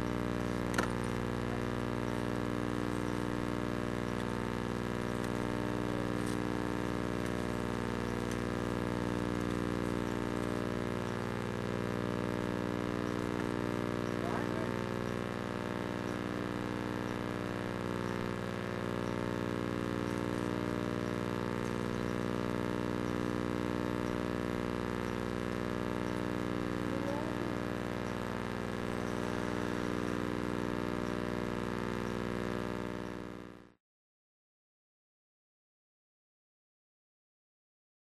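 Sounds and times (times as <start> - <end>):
faint voices: 14.1 - 15.1, 26.5 - 30.0.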